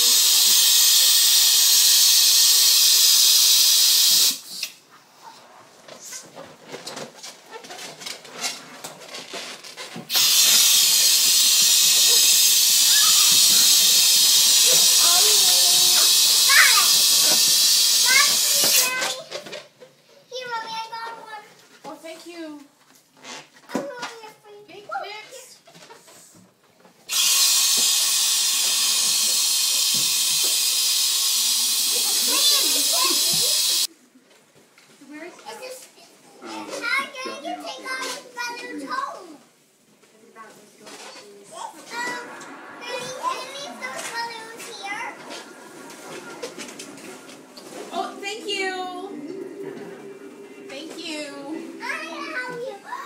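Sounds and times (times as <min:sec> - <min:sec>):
gas hissing into balloon: 0:00.0 - 0:04.8, 0:10.1 - 0:19.2, 0:27.1 - 0:33.9.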